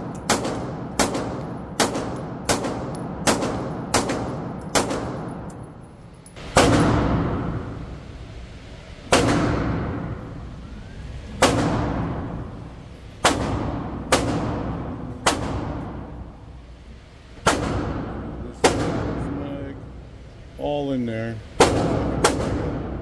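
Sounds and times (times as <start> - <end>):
echoing gunshots: 0.0 - 5.5, 6.4 - 7.8, 9.1 - 10.2, 11.4 - 16.4, 17.4 - 19.3, 21.6 - 23.0.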